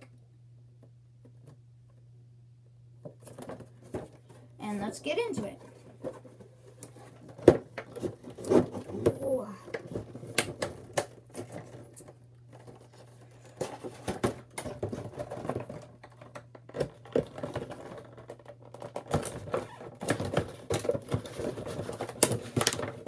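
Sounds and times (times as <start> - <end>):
fingers handling cardboard packaging: 5.6 - 23.0.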